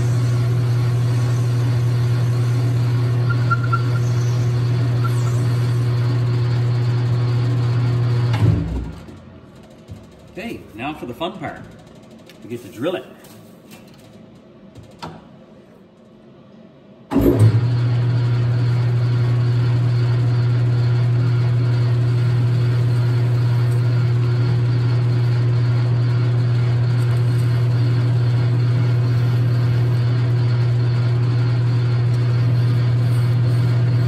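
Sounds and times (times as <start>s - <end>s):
metal lathe humming: 0.0s - 8.3s, 18.5s - 34.0s.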